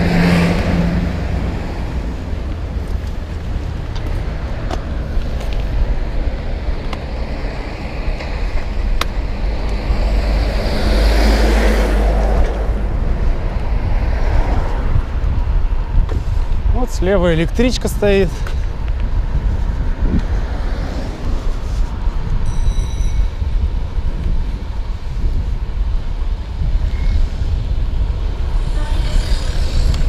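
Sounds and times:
vehicle passing: 0.0 - 15.5
wind rumble on microphone: 0.0 - 30.0.

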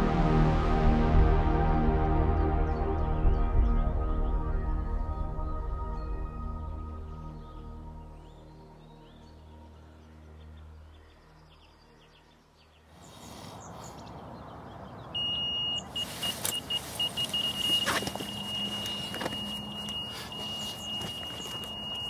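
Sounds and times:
high electronic alarm tone: 15.2 - 22.0
rustling and clicks: 16.0 - 22.0.

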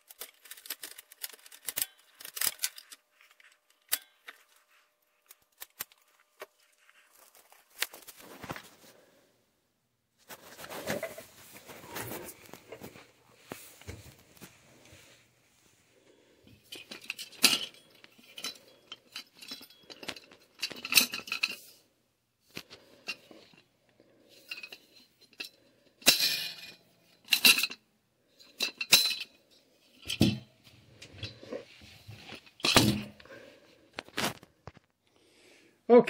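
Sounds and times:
metal pins clinking and rattling: 16.5 - 21.8, 24.3 - 27.8, 28.4 - 31.6.

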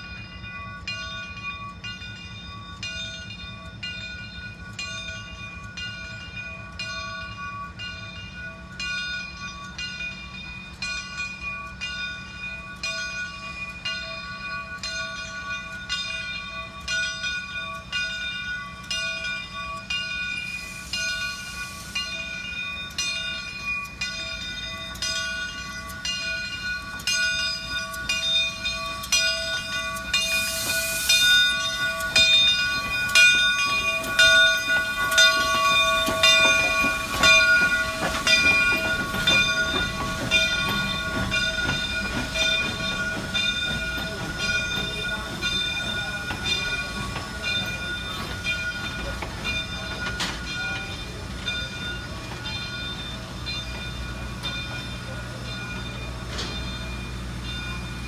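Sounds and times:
steam locomotive bell ringing: 0.0 - 58.0
steam hiss: 19.0 - 25.6, 26.2 - 58.0.

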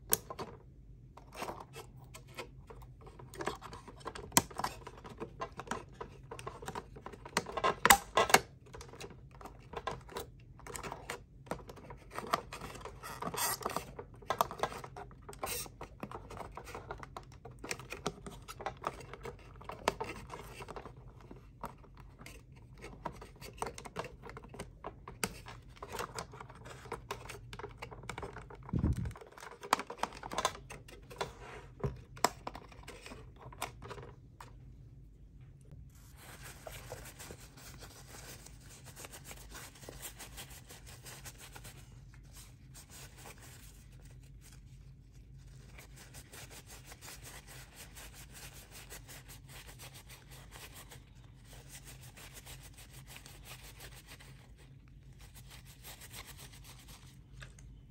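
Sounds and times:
plastic parts clicking and scratching: 0.0 - 34.6.

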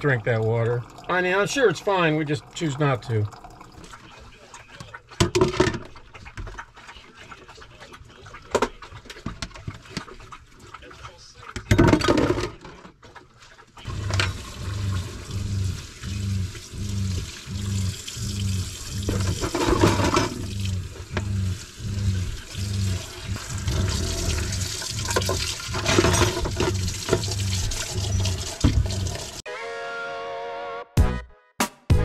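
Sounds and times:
water running into container: 0.0 - 29.4
low pulsing: 13.9 - 29.4.

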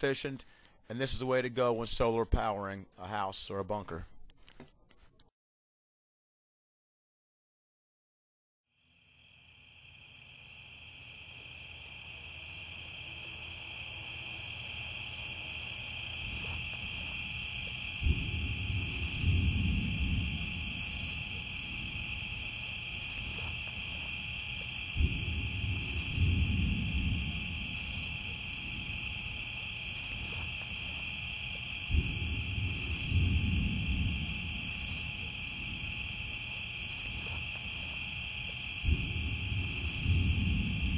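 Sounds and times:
insects chirping: 8.7 - 40.9
deep rumbling swell with thump: 18.0 - 20.8, 24.9 - 29.0, 31.9 - 34.7, 38.8 - 40.9.

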